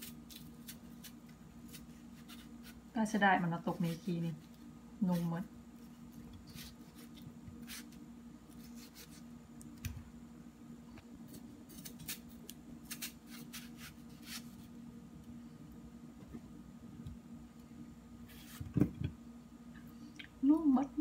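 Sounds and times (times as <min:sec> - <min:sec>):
knife cutting melon: 0:00.0 - 0:02.8, 0:05.0 - 0:09.2, 0:11.3 - 0:14.7
faint low hum: 0:00.0 - 0:21.0.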